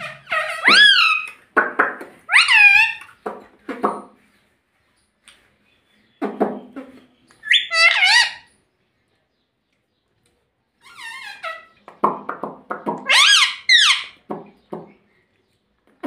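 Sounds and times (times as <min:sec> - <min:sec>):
parakeet squawking and chattering: 0:00.0 - 0:01.6, 0:02.2 - 0:04.1, 0:06.2 - 0:08.6, 0:10.8 - 0:11.9, 0:12.8 - 0:14.7.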